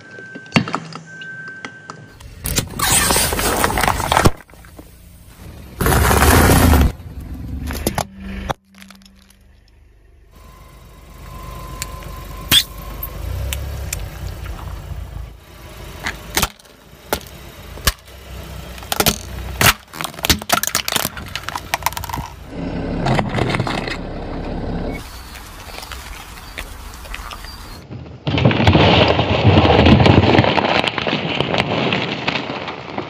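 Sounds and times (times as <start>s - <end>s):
car tyre crushing objects: 2.1s - 33.0s
plastic cups crushed: 2.8s - 4.6s, 18.8s - 22.4s.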